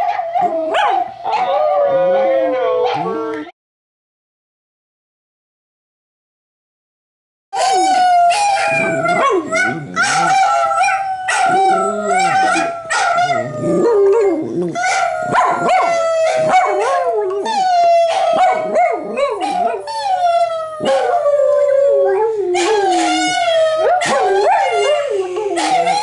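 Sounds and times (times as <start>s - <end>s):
dog howling: 0.0s - 3.5s, 7.6s - 26.0s
dog yips: 7.6s - 14.2s, 14.8s - 21.2s.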